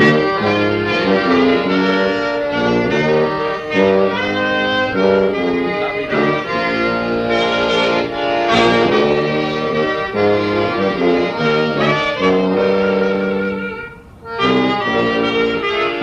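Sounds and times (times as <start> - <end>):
accordion: 0.0 - 16.0
clarinet: 0.0 - 16.0
tuba bass line: 0.0 - 16.0.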